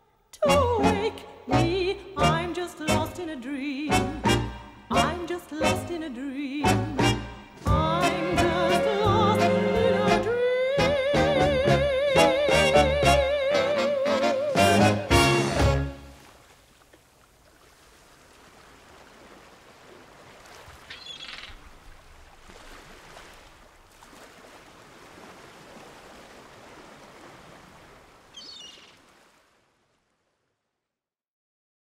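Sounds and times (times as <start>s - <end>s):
soft rushing water: 14.1s - 30.9s
high bird chirps: 20.9s - 21.6s, 28.4s - 28.9s.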